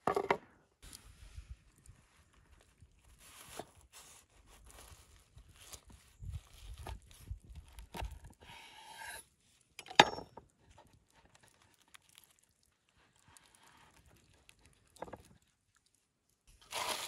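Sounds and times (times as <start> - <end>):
faint crinkling: 10.6 - 17.0
knife sawing through crusty bun: 16.7 - 17.0.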